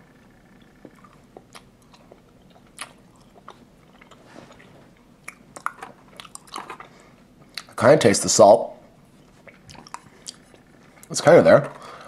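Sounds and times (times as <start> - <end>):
mouth clicks and smacks chewing: 0.8 - 7.8, 9.4 - 10.6.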